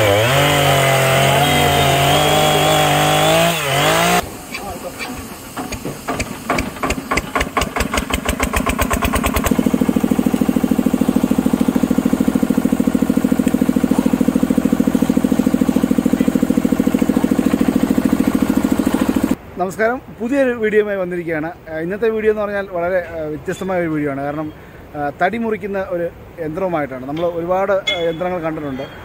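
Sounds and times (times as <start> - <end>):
log splitter engine starting up: 0.0 - 19.4.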